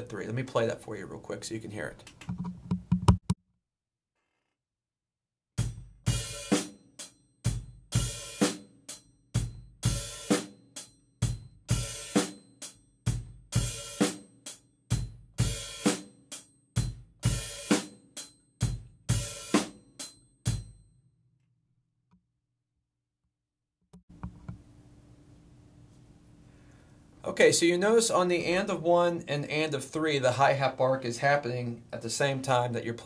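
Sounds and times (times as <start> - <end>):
drum kit playing a steady beat: 5.6 - 20.8.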